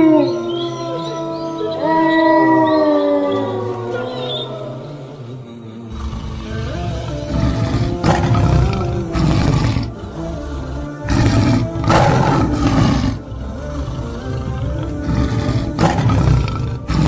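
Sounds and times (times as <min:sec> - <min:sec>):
background music: 0:00.0 - 0:17.0
leopards growling: 0:00.0 - 0:17.0.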